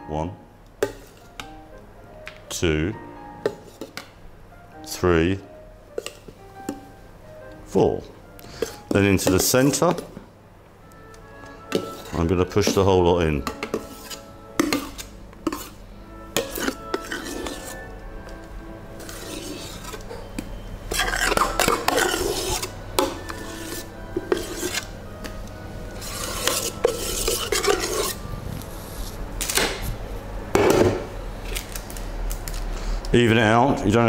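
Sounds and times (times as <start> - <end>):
metal spoon scraping a steel bowl: 8.6 - 10.1, 11.4 - 17.9, 19.0 - 25.0, 26.0 - 28.2.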